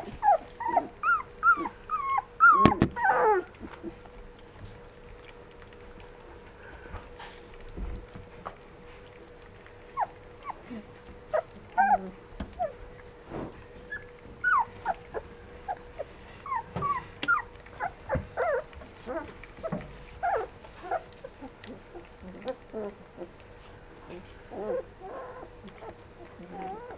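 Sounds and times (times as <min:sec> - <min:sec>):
puppies squeaking and whimpering: 0:00.0 - 0:03.9, 0:09.9 - 0:10.6, 0:11.3 - 0:12.8, 0:13.8 - 0:23.3, 0:24.5 - 0:26.9.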